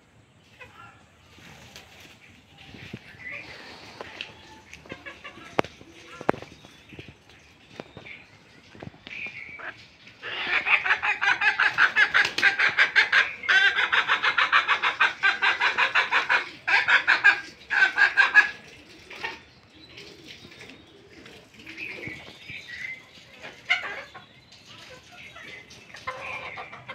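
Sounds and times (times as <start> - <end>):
chicken clucking: 0.4 - 26.9.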